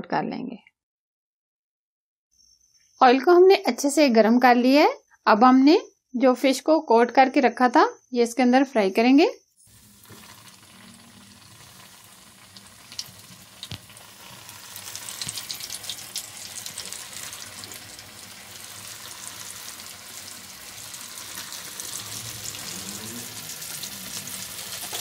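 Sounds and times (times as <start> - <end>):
fish deep-frying in oil: 9.6 - 25.0.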